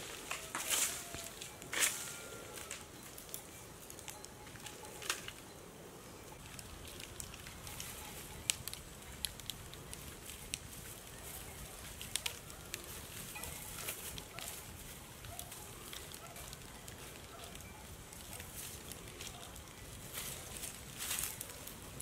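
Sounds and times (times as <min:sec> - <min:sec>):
campfire crackling and popping: 0:00.0 - 0:22.0
steady low hiss: 0:00.0 - 0:22.0.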